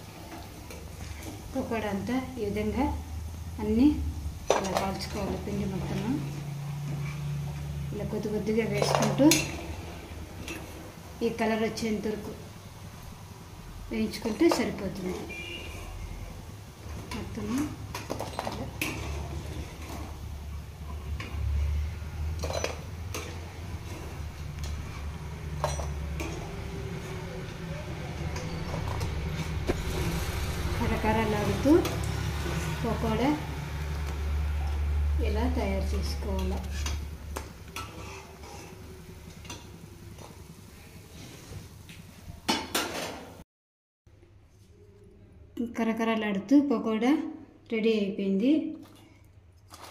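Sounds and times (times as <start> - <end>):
food rustling in metal bowl: 48.8 - 49.9.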